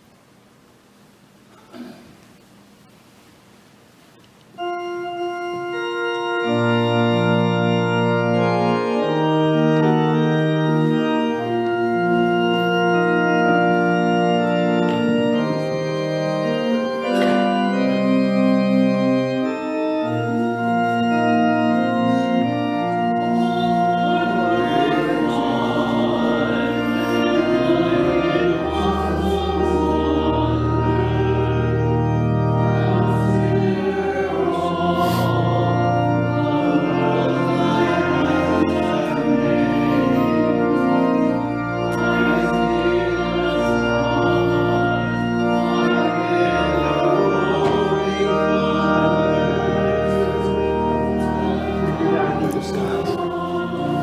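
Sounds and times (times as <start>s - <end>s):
church organ playing a hymn: 4.4s - 54.0s
people singing: 23.3s - 31.8s, 32.8s - 41.1s, 41.9s - 50.6s, 51.2s - 54.0s.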